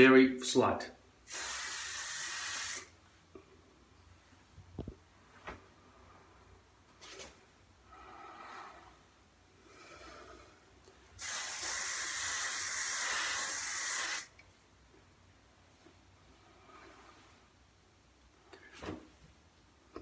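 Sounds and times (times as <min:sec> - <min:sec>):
aerosol spray can hissing: 0:01.3 - 0:02.9, 0:11.2 - 0:14.3.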